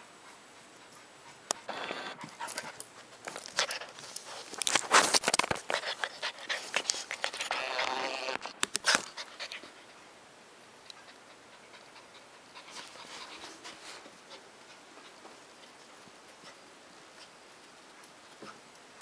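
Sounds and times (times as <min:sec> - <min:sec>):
puppy panting: 0:00.1 - 0:04.6, 0:05.7 - 0:08.0, 0:08.9 - 0:10.2, 0:10.8 - 0:17.5.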